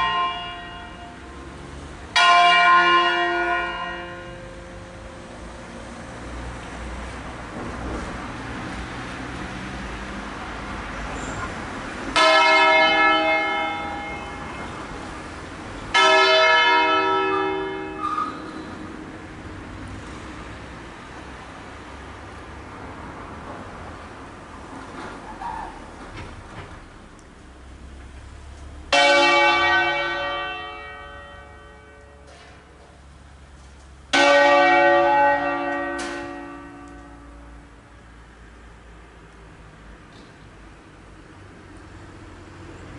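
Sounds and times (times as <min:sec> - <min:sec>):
church bell ringing: 0:00.0 - 0:01.4, 0:02.1 - 0:05.5, 0:12.1 - 0:14.8, 0:15.9 - 0:18.5, 0:28.9 - 0:32.7, 0:34.1 - 0:37.8.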